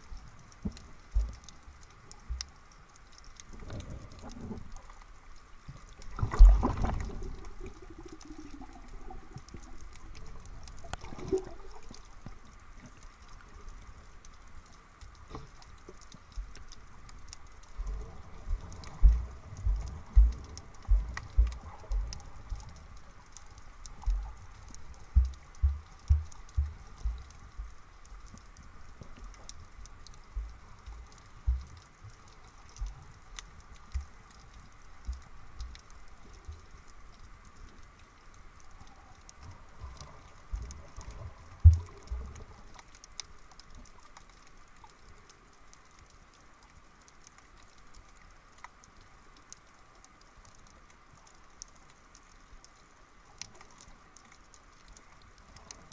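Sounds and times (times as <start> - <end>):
faint crackle of fine clicks: 0.0 - 55.9
muffled underwater thuds: 18.5 - 22.6, 25.1 - 27.8, 30.4 - 31.7.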